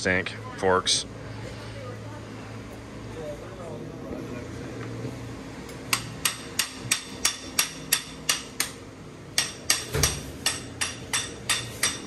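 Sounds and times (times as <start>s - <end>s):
hammer striking metal: 5.9s - 8.8s, 9.4s - 12.0s.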